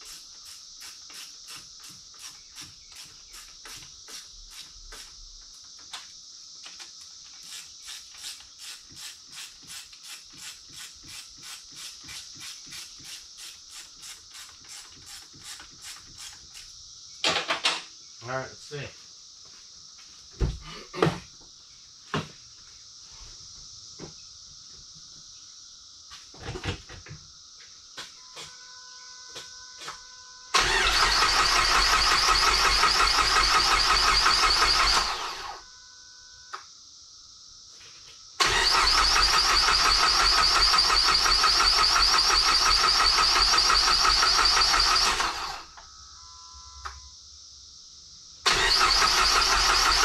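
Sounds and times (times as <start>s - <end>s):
electronic dash chime: 28.2s - 30.6s, 45.8s - 47.2s
starter motor cranking: 30.6s - 35.6s, 38.4s - 45.7s, 48.5s - 50.0s.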